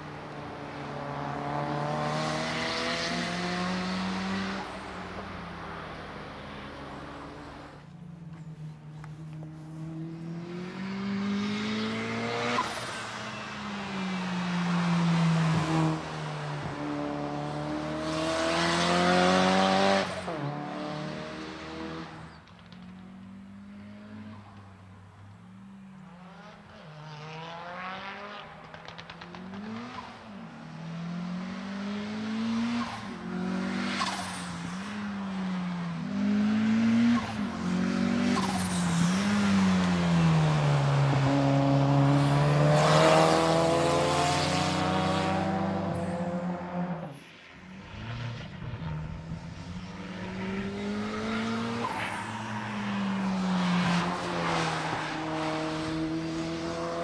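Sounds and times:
race car engine revving: 0:36.0 - 0:47.2.

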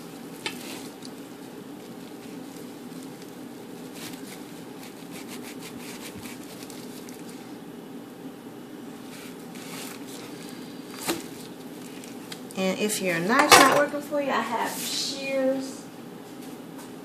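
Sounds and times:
steady background hum: 0:00.0 - 0:17.0
knife scraping through meat: 0:03.9 - 0:07.2.

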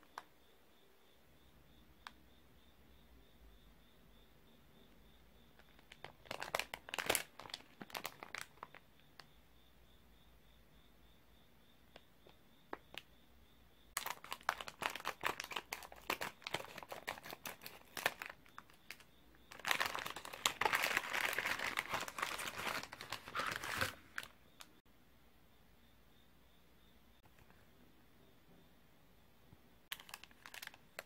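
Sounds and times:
plastic packet crinkling: 0:05.7 - 0:08.8, 0:14.0 - 0:24.4, 0:29.9 - 0:31.0
plastic tearing: 0:06.2 - 0:08.5, 0:14.0 - 0:24.3, 0:29.9 - 0:31.0.

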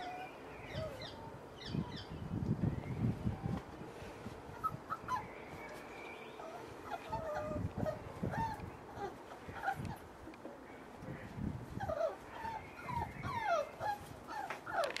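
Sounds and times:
puppies whining: 0:00.0 - 0:01.2, 0:04.5 - 0:10.1, 0:11.7 - 0:15.0.

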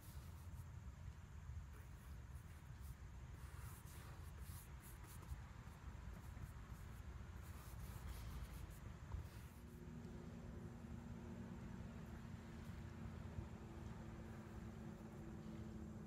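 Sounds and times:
faint low hum: 0:00.0 - 0:16.0
paintbrush scratching on canvas: 0:01.7 - 0:09.8.

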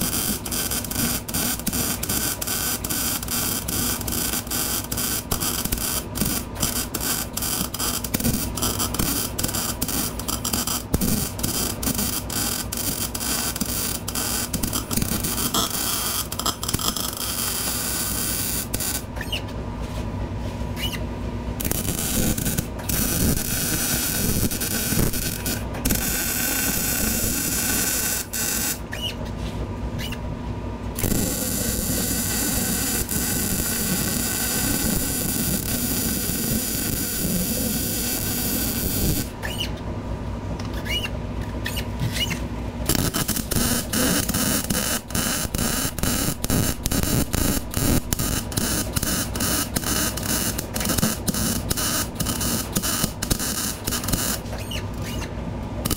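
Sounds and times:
welder arc crackling: 0:00.0 - 0:19.2, 0:21.6 - 0:29.1, 0:31.0 - 0:39.6, 0:42.8 - 0:55.9.

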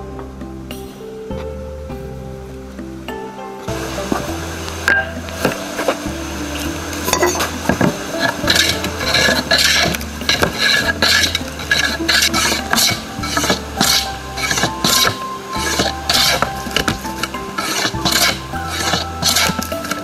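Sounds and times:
hand plane rasping wood: 0:07.4 - 0:20.0.

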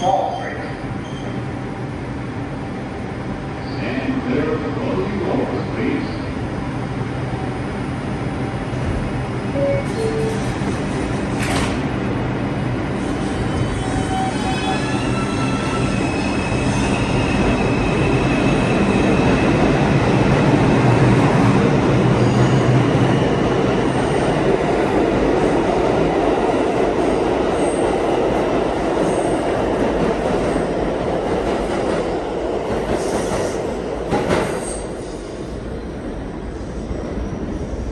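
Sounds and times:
subway train electric motors whining: 0:00.0 - 0:37.9
high wheel squeals: 0:13.0 - 0:17.1.

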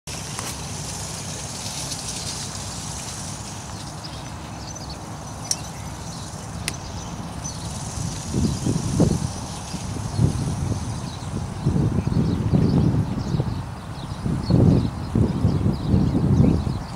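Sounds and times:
sharp clicks: 0:05.4 - 0:05.7.

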